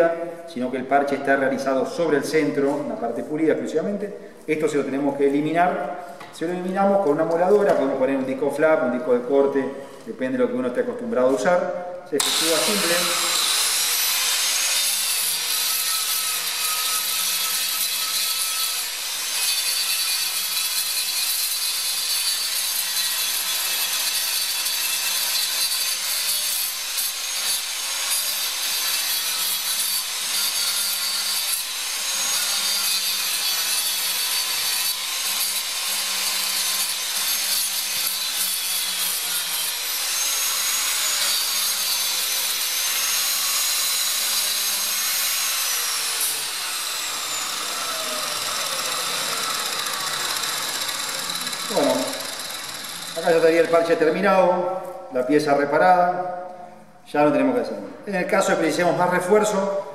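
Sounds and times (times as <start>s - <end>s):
angle grinder grinding fiberglass: 12.2s - 53.8s.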